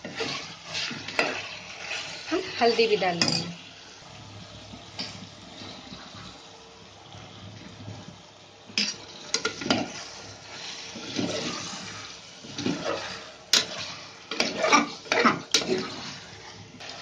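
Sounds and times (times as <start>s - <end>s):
spoon stirring and scraping: 0.0s - 3.6s, 8.8s - 17.0s
wet sizzle: 0.0s - 17.0s.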